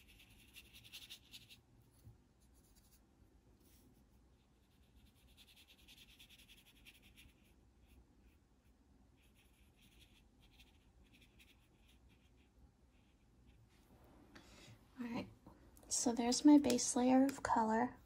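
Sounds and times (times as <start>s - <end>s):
paintbrush brushing on paper: 0.0s - 3.0s, 3.6s - 13.9s.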